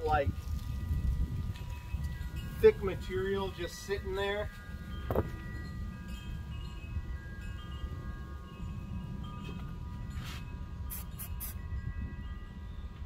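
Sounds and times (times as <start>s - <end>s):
chimes ringing: 0.8s - 13.0s
short hissing rustles: 10.2s - 11.6s.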